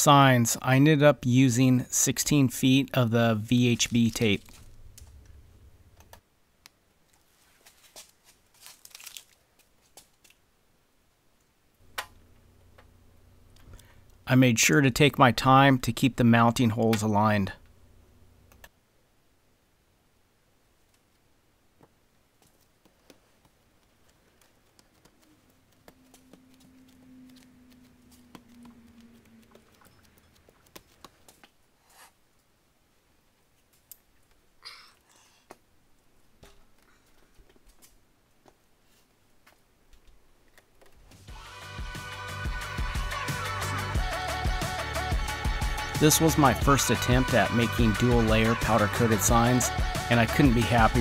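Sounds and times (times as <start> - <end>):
faint rustling of tape: 3.4 - 5.4, 6.1 - 10.5, 20.8 - 32.6, 33.4 - 41.3
faint low hum: 9.3 - 41.2.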